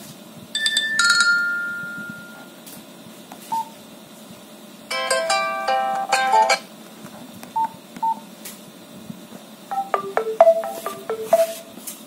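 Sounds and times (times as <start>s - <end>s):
phone ringtone melody: 0.6s - 2.5s, 4.9s - 6.6s, 9.7s - 11.7s
chiming alert tones: 9.7s - 11.6s.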